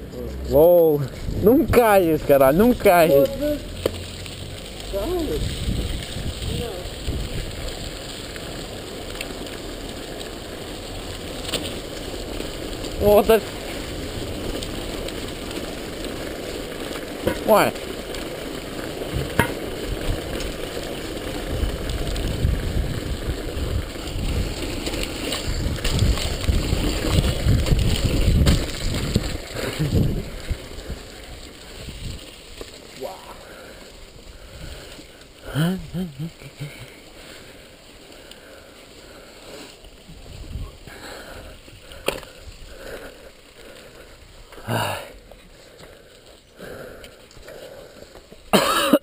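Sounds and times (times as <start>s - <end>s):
mountain bike rumbling and rattling: 0.0s - 49.0s
wind on microphone: 1.1s - 1.8s, 5.1s - 8.0s, 21.5s - 24.6s, 25.3s - 31.1s, 40.0s - 42.8s.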